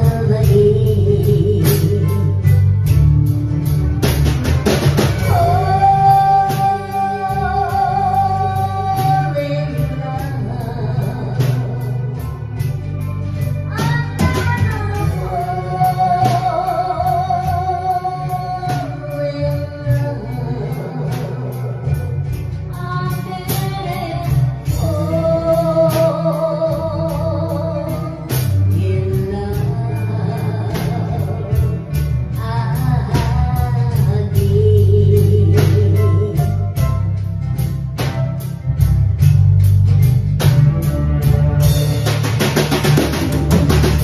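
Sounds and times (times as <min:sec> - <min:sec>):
woman singing with vibrato: 0:00.0 - 0:02.7, 0:05.1 - 0:12.6, 0:13.4 - 0:37.0
band accompaniment: 0:00.0 - 0:44.0
drums steady beat: 0:00.0 - 0:44.0.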